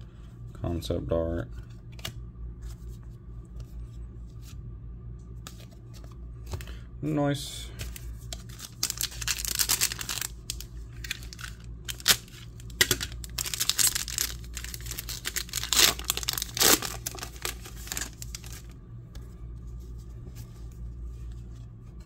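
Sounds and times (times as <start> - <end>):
foil wrapper tearing and crinkling: 8.4 - 18.7.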